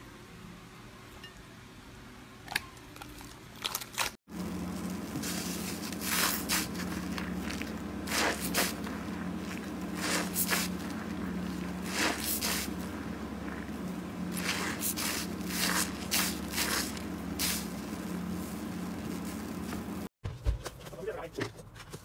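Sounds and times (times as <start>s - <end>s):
steady low hum: 4.3s - 20.1s
wet sponge squelching: 4.6s - 20.1s.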